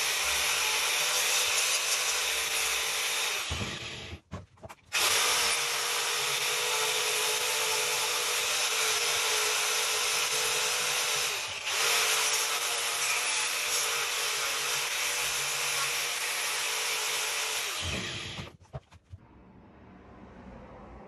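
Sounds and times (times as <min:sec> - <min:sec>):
angle grinder cutting wood: 0:00.0 - 0:04.2, 0:04.9 - 0:18.6.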